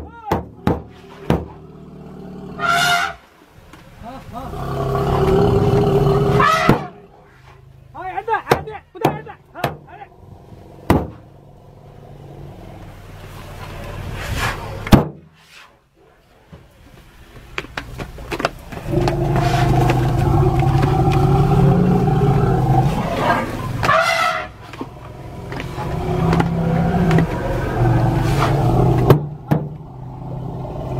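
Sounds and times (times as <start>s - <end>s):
sharp knocks: 0.3s - 1.6s, 10.9s - 11.2s, 29.0s - 29.8s
jeep engine revving: 18.8s - 30.9s.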